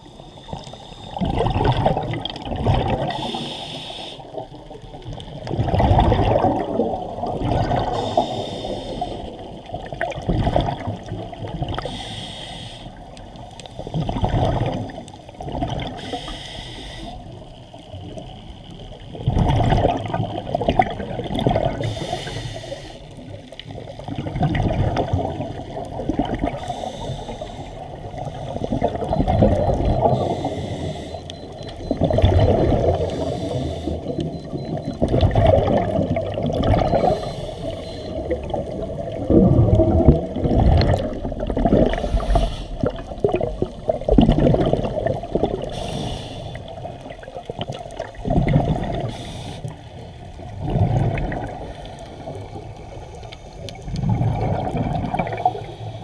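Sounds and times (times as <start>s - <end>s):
regulator inhale hiss: 0.0s - 1.2s, 3.1s - 4.5s, 7.9s - 9.6s, 11.8s - 14.0s, 15.9s - 17.4s, 21.8s - 23.4s, 26.5s - 28.8s, 30.0s - 31.6s, 32.9s - 34.2s, 37.0s - 38.3s, 41.9s - 43.0s, 45.6s - 46.9s, 49.0s - 50.0s, 51.6s - 53.8s, 55.2s - 56.0s
exhaled bubbles rushing: 1.2s - 3.4s, 5.0s - 8.3s, 9.2s - 11.8s, 13.8s - 16.0s, 19.1s - 21.9s, 23.5s - 26.8s, 27.8s - 30.5s, 31.4s - 45.7s, 46.5s - 49.2s, 50.2s - 55.7s.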